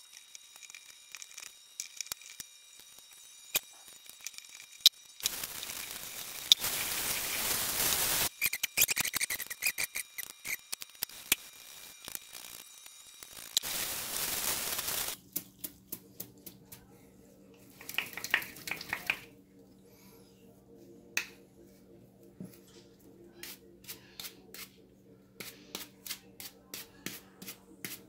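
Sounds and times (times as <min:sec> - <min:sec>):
scratchy clicks and crackles: 0:00.0 - 0:16.6
tap water running into a sink: 0:17.8 - 0:19.3.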